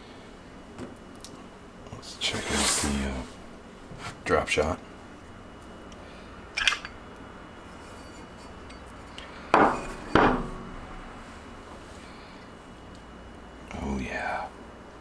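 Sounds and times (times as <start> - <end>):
metal mold halves clinking: 6.6 - 7.0.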